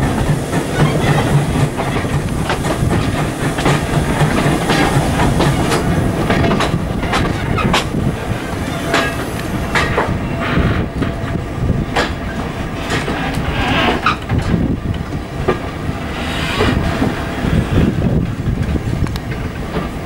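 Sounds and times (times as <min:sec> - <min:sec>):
train wheels rumbling: 0:00.0 - 0:20.0
wheels clicking over rail joints: 0:00.0 - 0:20.0
wheel screech: 0:12.8 - 0:14.3, 0:16.1 - 0:17.2.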